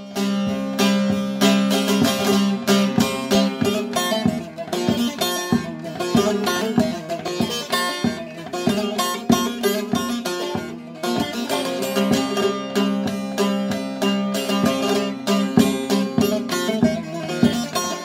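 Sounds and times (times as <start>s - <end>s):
long-necked lute picked notes: 0.0s - 18.0s.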